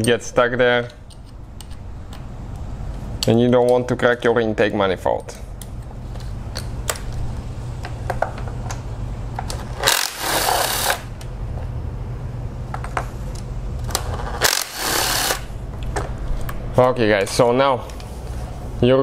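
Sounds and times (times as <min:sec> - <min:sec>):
steady low hum: 0:00.0 - 0:19.0
power driver spinning: 0:09.5 - 0:11.3, 0:13.9 - 0:15.6.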